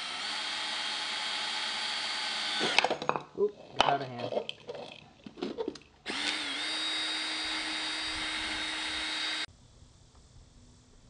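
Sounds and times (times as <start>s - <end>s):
cordless drill boring plastic: 0.0s - 3.0s, 6.1s - 9.5s.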